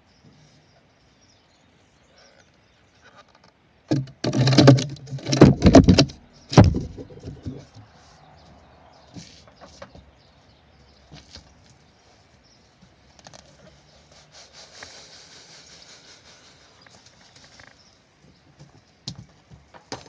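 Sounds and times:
wooden jig scraping on concrete: 0:03.9 - 0:07.7.

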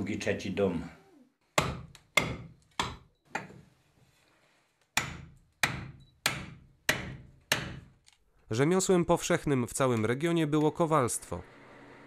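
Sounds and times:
hatchet striking wood: 0:01.6 - 0:03.5, 0:05.0 - 0:08.0.

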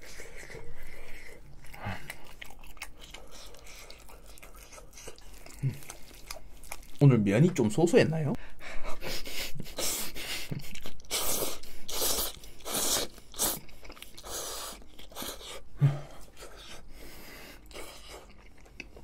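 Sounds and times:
chewing: 0:00.0 - 0:07.0, 0:10.5 - 0:19.0
slurping noodles: 0:09.7 - 0:15.6.

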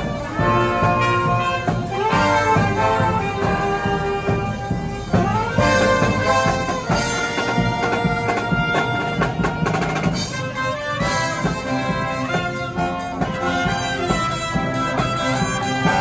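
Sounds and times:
bass drum beats: 0:00.0 - 0:16.0
marching brass band playing: 0:00.0 - 0:16.0
snare drum beats: 0:00.0 - 0:16.0.

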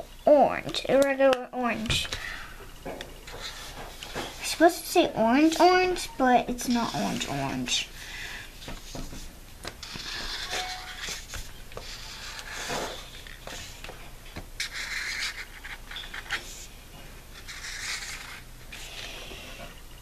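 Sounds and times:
marker scratching on paper plate: 0:06.5 - 0:07.6, 0:09.8 - 0:13.7, 0:14.6 - 0:16.7, 0:17.4 - 0:19.4.

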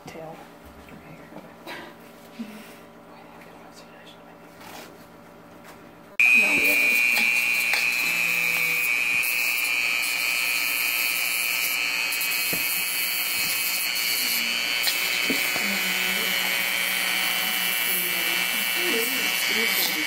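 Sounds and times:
rotary tool whining: 0:06.2 - 0:20.0
sanding cone grinding wood: 0:06.2 - 0:20.0.

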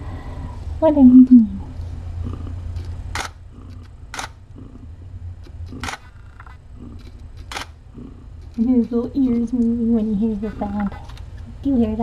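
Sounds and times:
camera shutter clicks: 0:03.1 - 0:03.4, 0:04.1 - 0:04.4, 0:05.8 - 0:06.1, 0:07.0 - 0:07.8.

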